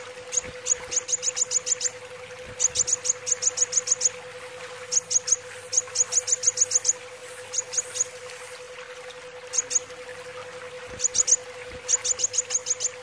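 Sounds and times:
faint steady hum: 0.0 - 13.0
sunbird high chipping calls: 0.3 - 2.0, 11.0 - 13.0.

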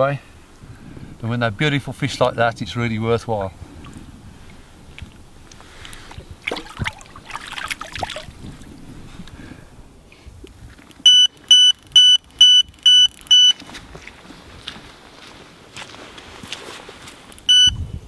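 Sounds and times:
water splashing: 3.5 - 8.9
electronic bite alarm beeping: 11.1 - 13.6, 17.5 - 17.8.

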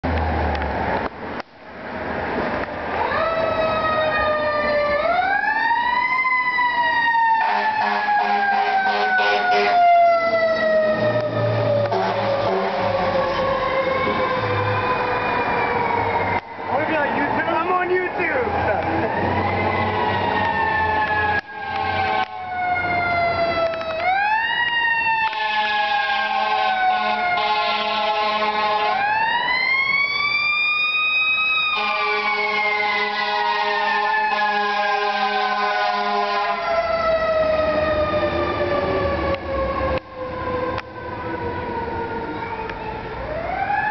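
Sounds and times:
truck engine rumble: 0.0 - 43.9
mechanical siren wailing: 3.0 - 16.8, 18.4 - 43.9
vehicle horn: 7.4 - 9.8, 11.8 - 13.1, 25.3 - 29.0, 31.8 - 36.6.

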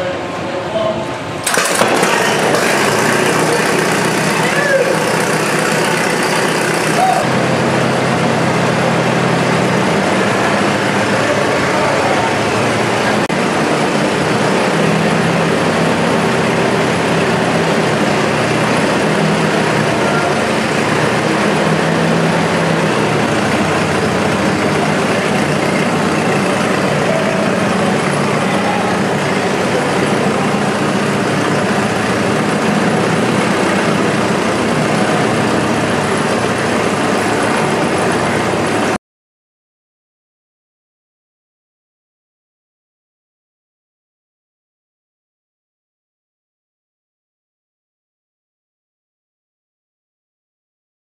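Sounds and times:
tractor engine idling: 1.2 - 39.0.

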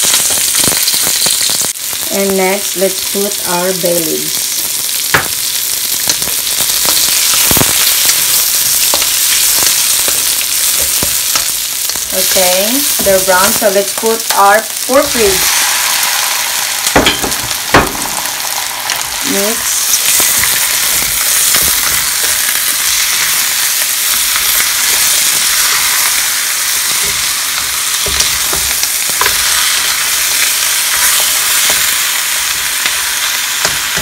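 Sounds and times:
meat sizzling in a wok: 0.0 - 34.0
spoon knocking on pan: 5.2 - 5.4, 17.0 - 18.3.

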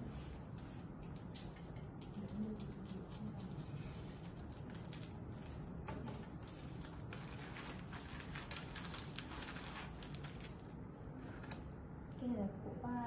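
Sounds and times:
plastic envelopes crinkling: 1.0 - 10.8.

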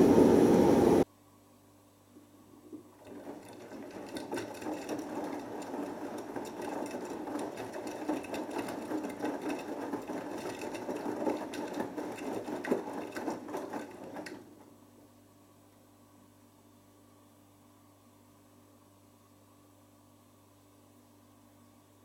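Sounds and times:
washing machine drum tumbling: 2.7 - 14.7.

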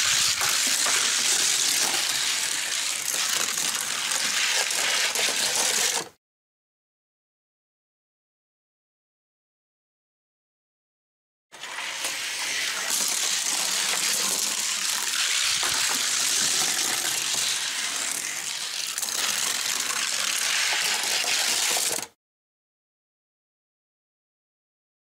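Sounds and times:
toy cars rattling down track: 0.0 - 6.2, 11.6 - 22.1.

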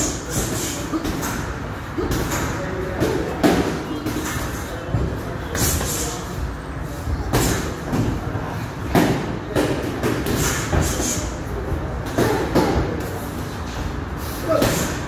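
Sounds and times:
gym noise: 0.0 - 15.0.

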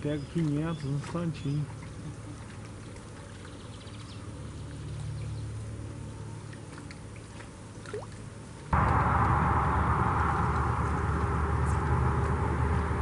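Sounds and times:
distant highway traffic rumble: 8.8 - 13.0
rising whistle: 8.8 - 13.0.

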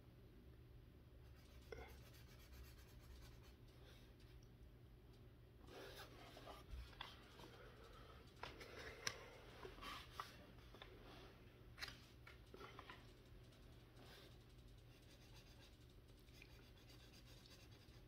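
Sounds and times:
marker scratching on paper: 1.4 - 3.6, 14.1 - 18.0.

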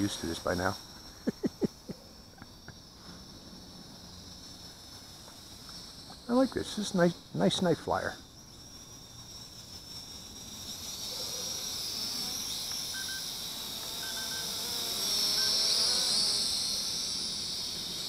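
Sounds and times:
drone propellers whining: 11.6 - 18.0.

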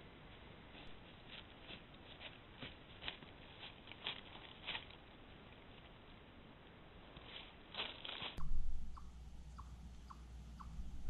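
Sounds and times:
rustling and soft crackles: 0.0 - 8.9.

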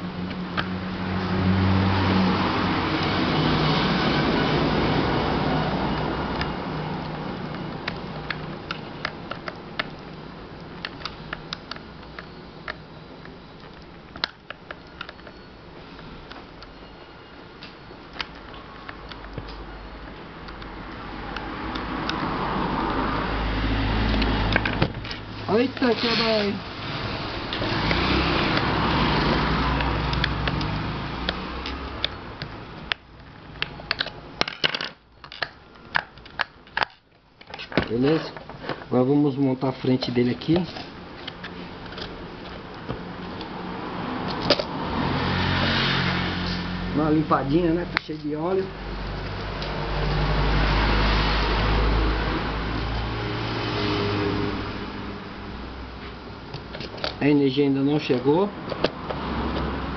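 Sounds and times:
sharp clicks of fan parts: 6.0 - 15.4, 24.1 - 38.9.

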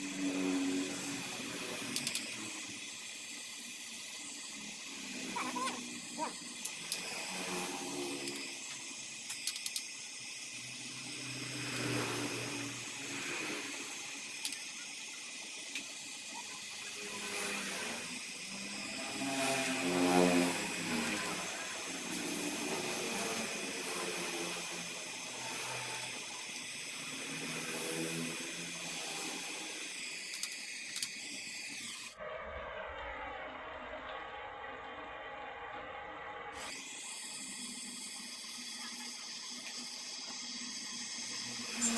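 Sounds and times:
welding torch flame hissing: 0.0 - 32.2, 35.9 - 41.9
sharp clicks: 9.3 - 9.9, 30.3 - 31.4
low hum: 31.8 - 41.9.

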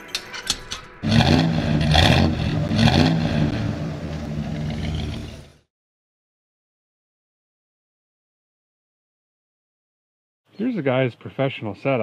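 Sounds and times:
car engine revving: 1.0 - 5.7.

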